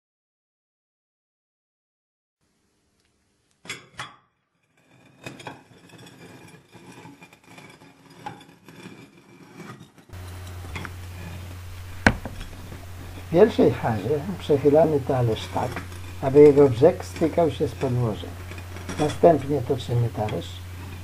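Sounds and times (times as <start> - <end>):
light scraping: 4.8 - 21.0
low hum: 10.2 - 21.0
stone ball knocking on a plate: 12.0 - 12.8.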